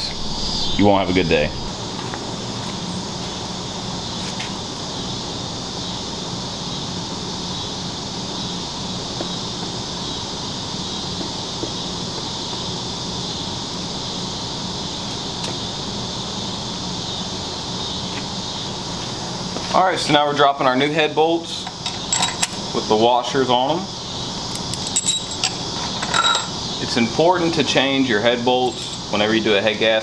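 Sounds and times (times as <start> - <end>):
low hum: 0.0 - 2.5
insect chirring: 0.0 - 30.0.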